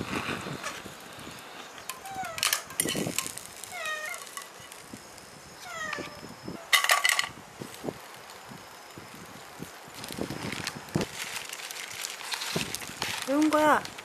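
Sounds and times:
cats meowing: 2.0s - 2.5s, 3.7s - 4.4s, 5.6s - 6.3s.

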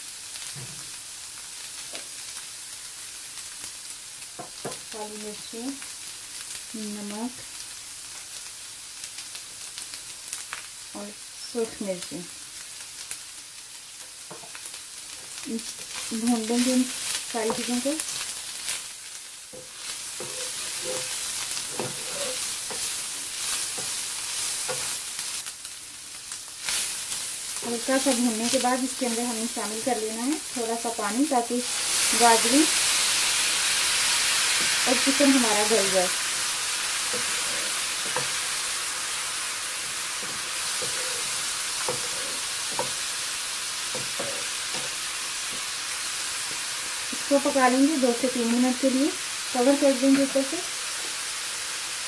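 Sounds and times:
food sizzling in a frying pan: 0.0s - 52.0s
wooden spatula scraping a pan: 15.3s - 18.4s, 19.6s - 25.0s, 37.0s - 38.7s, 39.9s - 43.1s, 43.9s - 45.7s.

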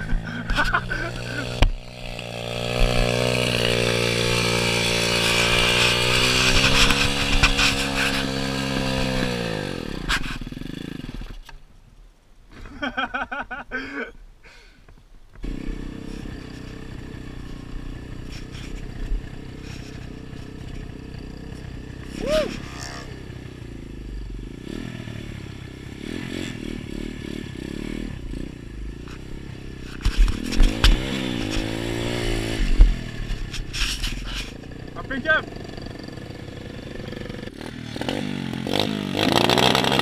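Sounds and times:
dirt bike engine running and stalling: 0.0s - 11.6s, 15.3s - 40.0s
engine noise of riding: 0.0s - 11.6s, 15.3s - 40.0s.

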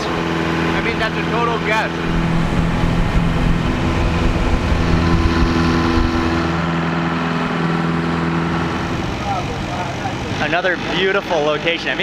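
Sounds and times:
boat engine droning: 0.0s - 12.0s
wind and water rushing: 0.2s - 7.8s.

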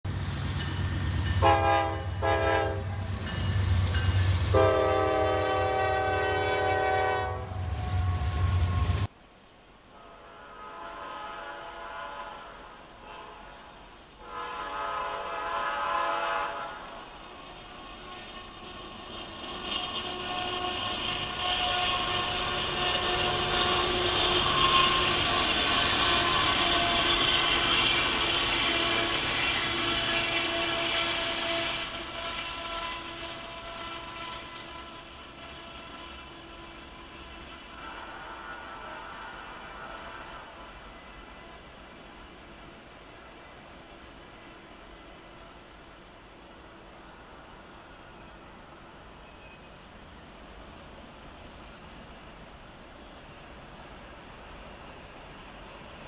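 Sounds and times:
freight train rolling by: 0.0s - 9.2s, 9.9s - 56.0s
locomotive air horn blasts: 1.4s - 3.1s, 4.5s - 9.1s, 9.9s - 27.5s, 28.6s - 41.6s.

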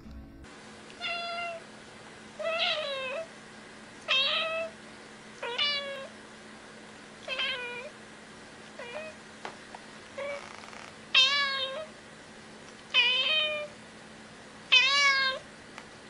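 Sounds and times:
kitten meowing: 11.2s - 11.9s.

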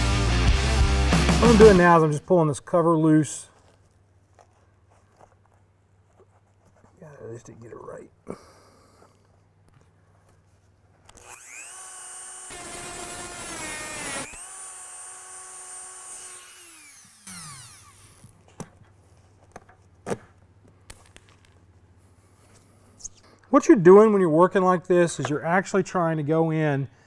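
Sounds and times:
rotary tool grinding metal: 11.1s - 18.3s
rotary tool whining: 11.1s - 18.5s.

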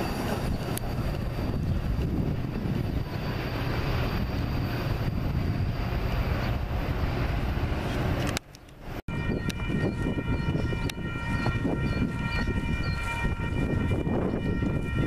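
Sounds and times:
wind on microphone: 0.0s - 15.0s
distant locomotive horn chord: 9.1s - 15.0s.

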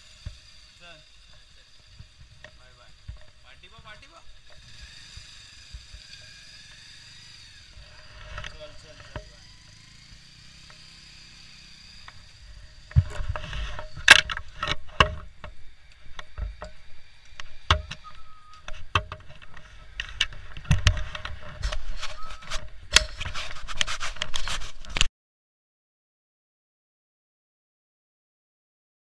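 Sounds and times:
knocks clicks and rattles: 18.6s - 25.1s.

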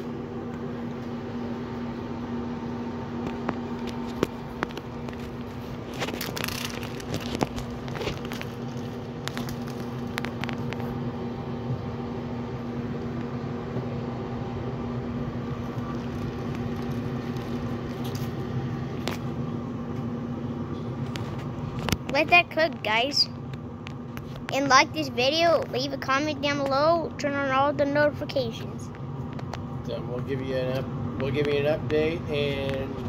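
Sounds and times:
machine hum: 0.0s - 33.0s
plastic bags crinkling: 4.6s - 10.8s.

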